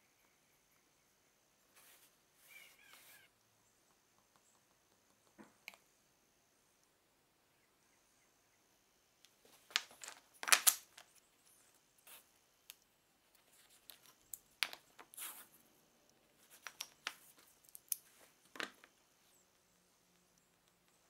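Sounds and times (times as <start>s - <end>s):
wooden blocks scraping and tapping: 16.4s - 19.0s.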